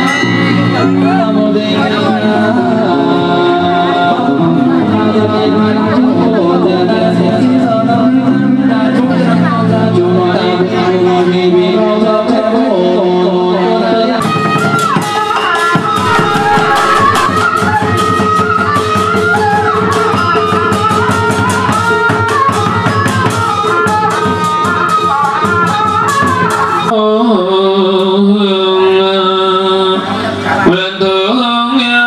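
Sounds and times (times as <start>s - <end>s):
sharp percussion beat: 15.8s - 18.4s
melody with bending notes: 16.0s - 18.1s.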